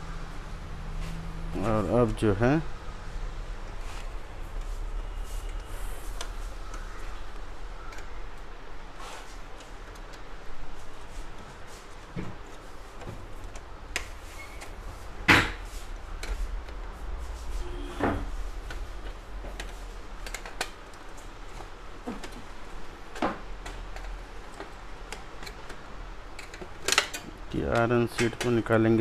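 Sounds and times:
plastic and metal parts clicking: 18.7 - 28.8.

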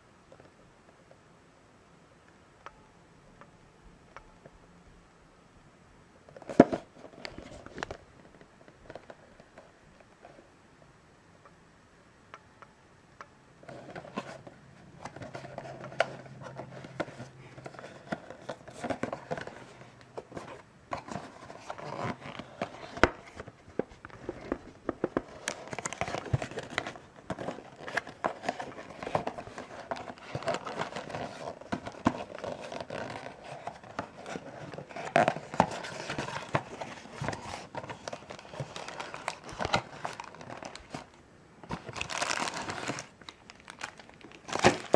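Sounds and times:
cardboard box being opened: 13.7 - 23.5, 24.2 - 41.1, 41.7 - 43.1, 43.7 - 44.9.

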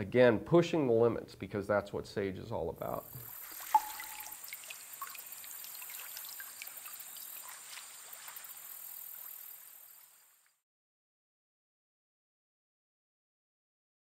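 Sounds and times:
stream water rushing: 3.2 - 10.0.

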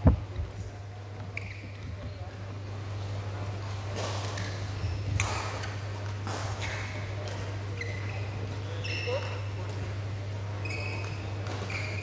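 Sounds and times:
low hall hum: 0.0 - 12.0
shoe squeaking on court: 1.2 - 2.1, 4.4 - 5.9, 6.6 - 9.7, 10.4 - 12.0.

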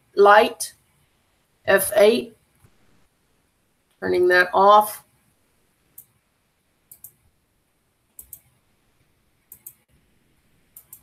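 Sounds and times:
computer mouse clicks: 5.9 - 6.2, 6.9 - 7.2, 8.1 - 8.6, 9.5 - 9.9, 10.7 - 11.0.

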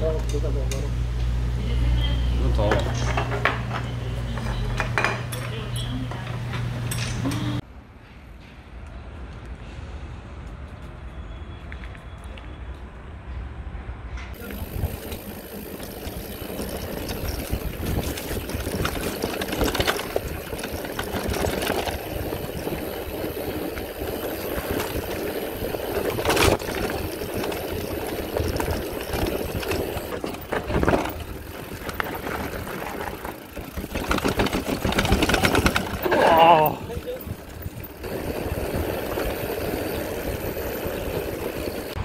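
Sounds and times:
bike rattling: 2.4 - 7.6, 14.3 - 42.0
wind noise: 14.2 - 42.0
tyres rumbling on dirt: 14.4 - 42.0.

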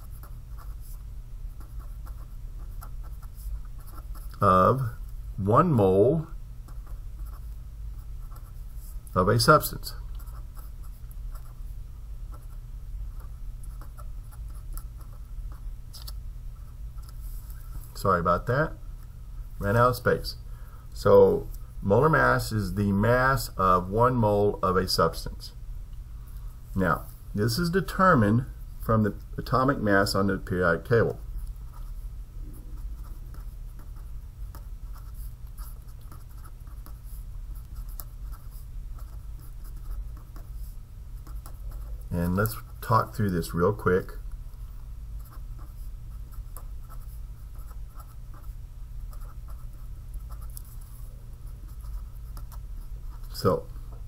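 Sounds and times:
pen scratching on paper: 0.0 - 4.4, 6.7 - 9.6, 10.2 - 11.6, 12.3 - 15.7, 32.7 - 43.1, 45.2 - 53.6
steady low hum: 0.0 - 54.0
low hum: 31.1 - 54.0.

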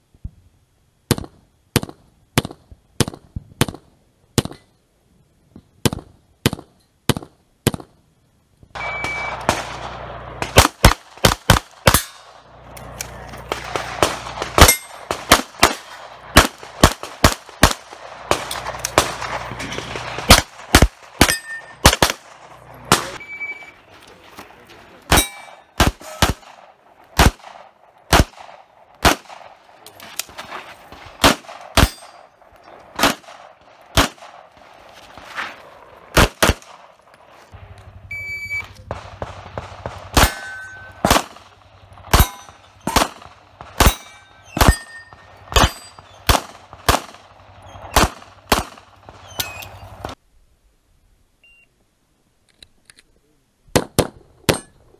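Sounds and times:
short high electronic beep: 8.8 - 9.4, 23.2 - 23.8
bullets ringing steel targets: 8.8 - 10.6, 11.9 - 16.0, 18.3 - 22.2, 25.1 - 26.6, 31.3 - 33.3, 39.1 - 49.9, 54.5 - 54.8.

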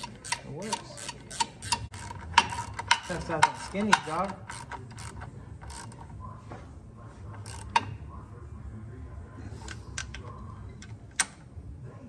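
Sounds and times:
hand ratchet clicking: 0.0 - 6.1, 7.4 - 7.9.

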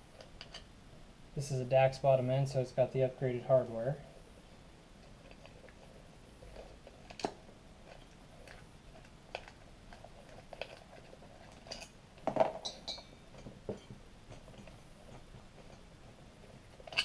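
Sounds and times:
small metallic clicks and clinks: 0.2 - 0.7, 6.6 - 15.9, 16.8 - 17.0.

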